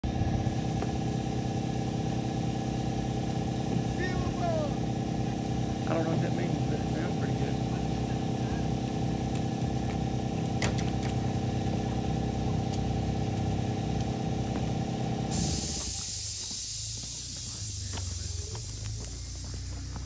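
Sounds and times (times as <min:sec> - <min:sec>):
engine hum: 0:00.0 - 0:20.0
steady hiss: 0:15.3 - 0:20.0.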